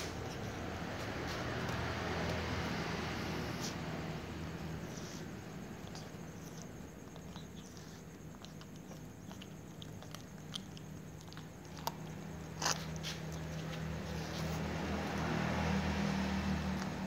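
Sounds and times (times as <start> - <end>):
cats crunching dry kibble: 5.8 - 14.6.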